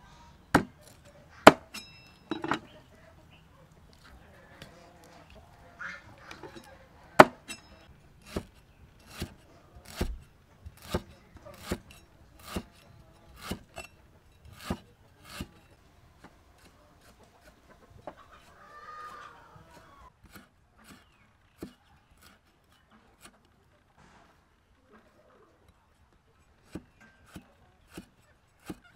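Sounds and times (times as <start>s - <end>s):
cleaver chopping on wooden board: 0.5s - 1.8s, 7.2s - 13.9s, 14.5s - 15.6s, 26.7s - 28.9s.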